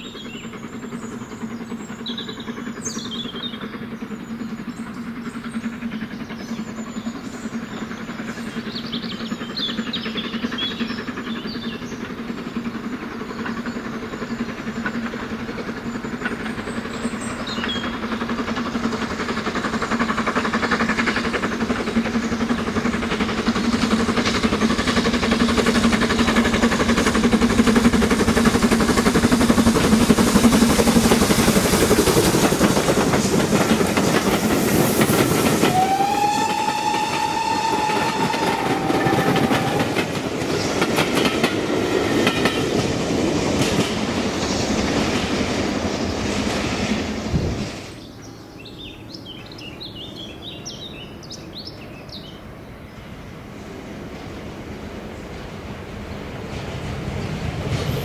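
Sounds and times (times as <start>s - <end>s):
birdsong: 0.0s - 27.4s, 48.0s - 57.8s
train wheels rattling on rails: 0.0s - 58.0s
steam locomotive whistle: 35.2s - 40.2s.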